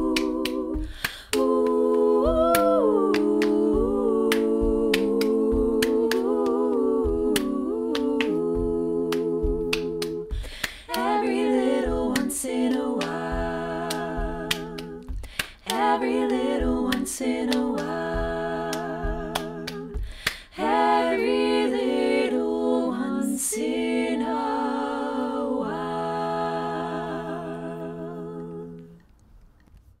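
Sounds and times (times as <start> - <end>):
body percussion claps and snaps: 0.0 - 20.6
women singing a cappella: 0.0 - 29.1.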